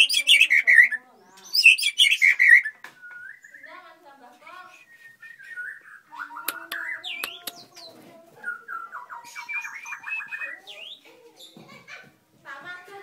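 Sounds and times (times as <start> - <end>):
bird singing whistled phrases: 0.0 - 3.9, 4.6 - 11.0
bird clicking notes: 6.4 - 7.9.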